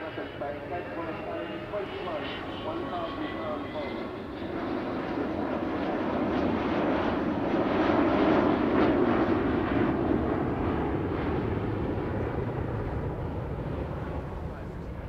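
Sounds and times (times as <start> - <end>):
jet roar flying overhead: 0.0 - 15.0.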